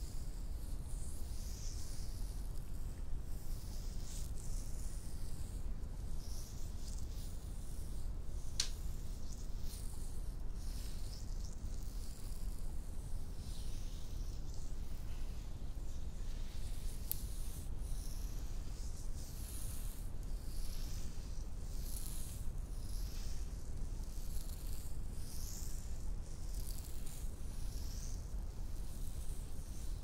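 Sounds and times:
sharp click: 8.6 - 8.8.

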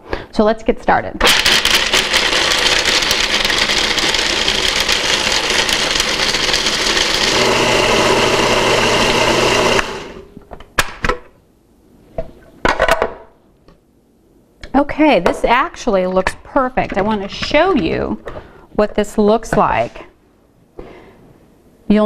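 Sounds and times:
food processor grinding nuts: 1.2 - 10.3.

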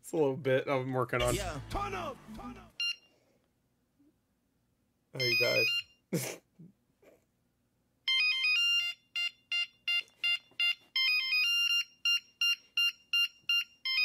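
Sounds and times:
electronic ringtone melody: 5.2 - 6.0, 8.1 - 14.0.

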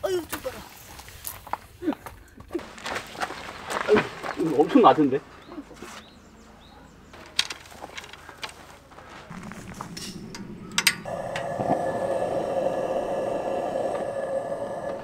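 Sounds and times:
gas lantern hissing: 9.6 - 15.0.

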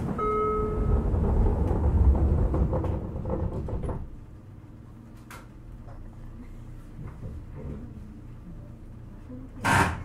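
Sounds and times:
heavy low train rumble: 0.0 - 4.8.

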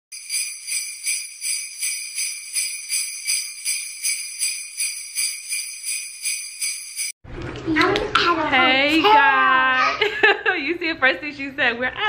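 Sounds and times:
sleigh bells shaking: 0.1 - 7.2.

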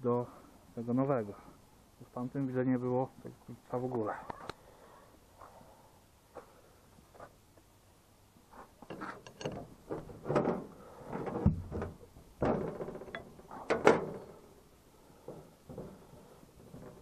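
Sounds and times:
metal knocks: 8.9 - 14.3.

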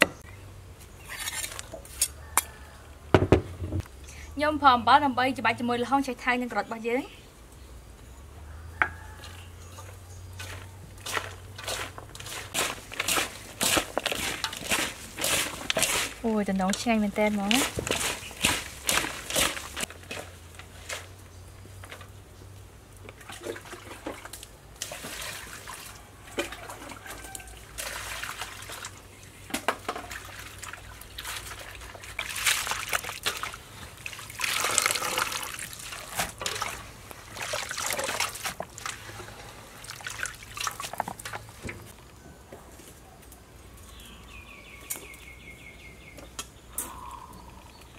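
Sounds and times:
water sloshing and splashing: 9.7 - 16.3, 17.4 - 21.1, 23.1 - 41.9
hands swishing vegetables in water: 10.4 - 16.3, 17.3 - 19.9.

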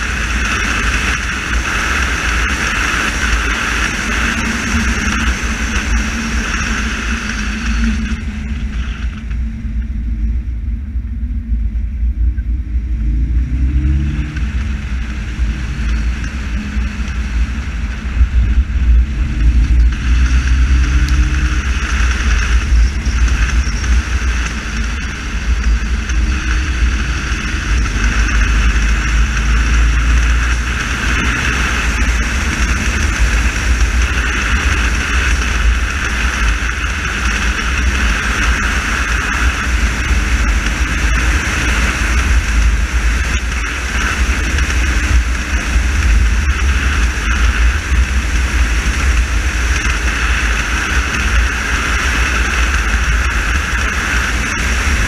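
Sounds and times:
car engine accelerating: 0.0 - 55.0
wind buffeting microphone: 0.0 - 55.0.

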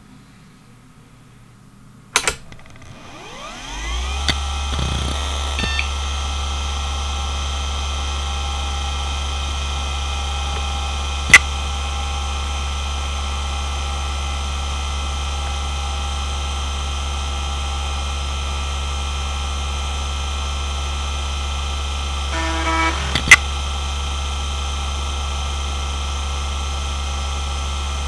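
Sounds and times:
hard drive high whine: 2.2 - 16.5, 21.1 - 25.6
hard drive spinning hum: 2.4 - 7.5, 22.3 - 23.6
hard drive sharp click: 22.4 - 23.4.

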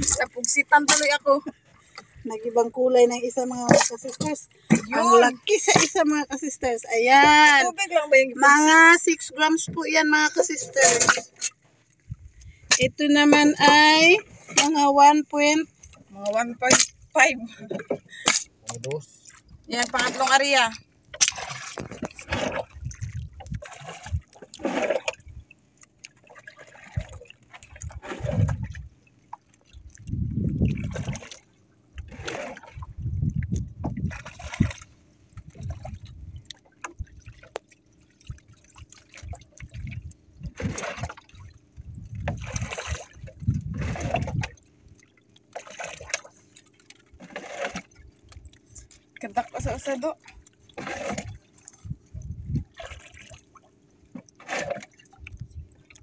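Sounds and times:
water splashing against boat hull: 0.0 - 56.0
low rumbles: 26.9 - 29.0, 29.8 - 31.3, 51.1 - 52.9.

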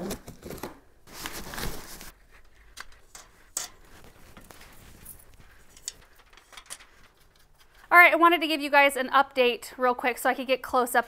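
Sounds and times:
packaging rustling: 0.0 - 7.9.

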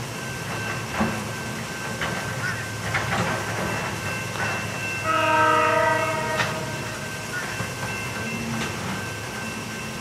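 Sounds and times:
train rumble: 0.0 - 10.0
locomotive air horn blast: 5.0 - 6.9.

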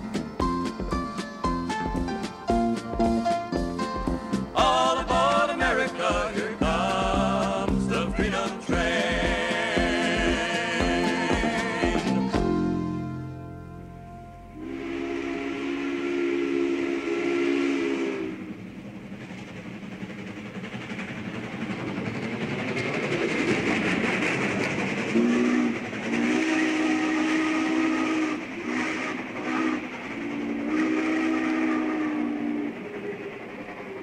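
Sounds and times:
train rushing by: 0.0 - 34.0
steam locomotive whistle: 4.6 - 18.7, 25.1 - 33.4.

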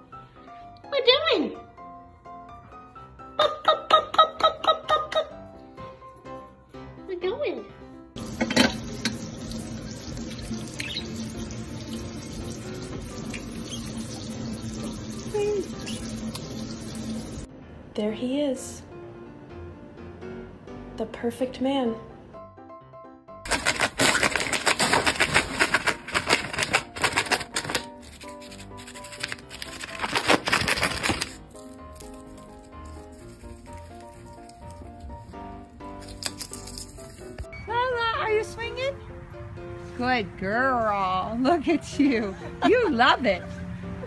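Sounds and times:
light background music: 0.0 - 44.0
tap water splashing into sink: 8.2 - 17.2
bird ripping paper with beak: 23.5 - 37.5.

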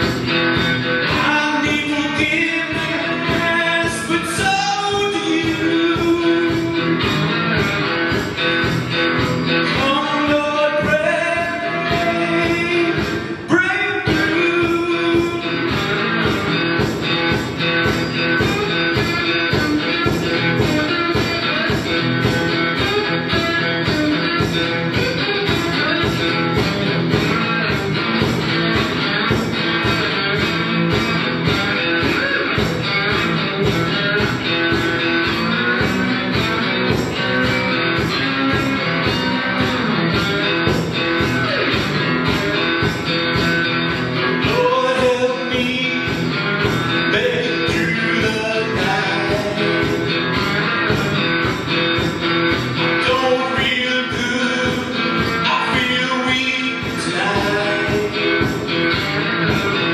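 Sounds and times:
slide guitar blues rock: 0.0 - 59.9.

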